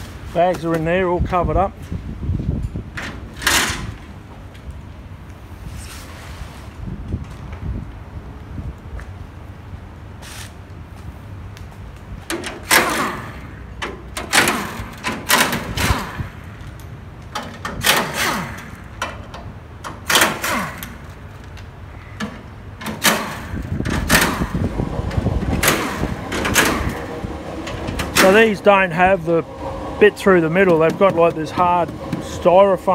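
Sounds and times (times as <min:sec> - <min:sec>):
pneumatic impact wrench bursts: 0:12.4 - 0:16.6, 0:17.7 - 0:19.2, 0:19.9 - 0:21.2, 0:22.8 - 0:24.8, 0:25.5 - 0:28.5.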